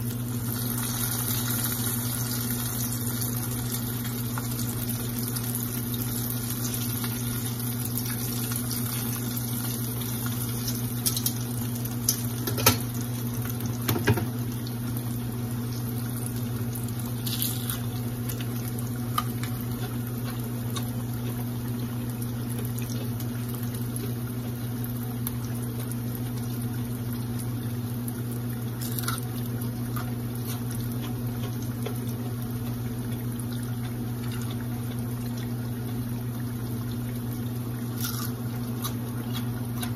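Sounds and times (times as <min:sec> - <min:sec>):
onion rings sizzling in oil: 0:00.0 - 0:14.2.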